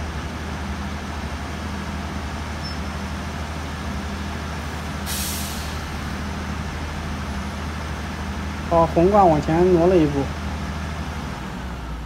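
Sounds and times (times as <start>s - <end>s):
diesel truck engine idling: 0.0s - 12.0s
sudden hiss of air: 4.7s - 6.1s.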